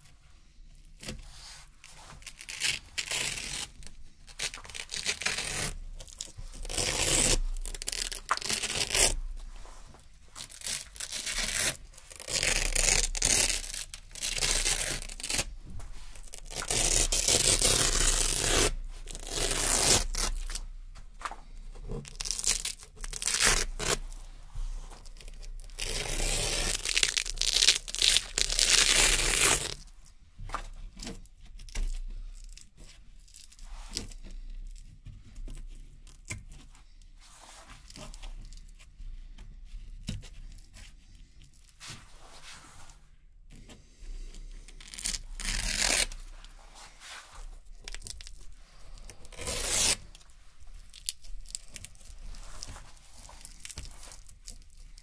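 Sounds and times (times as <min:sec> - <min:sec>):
hook-and-loop tape ripping: 0:02.2 - 0:09.2, 0:10.4 - 0:20.6, 0:21.9 - 0:24.2, 0:24.9 - 0:29.9, 0:44.7 - 0:46.5, 0:47.7 - 0:55.0.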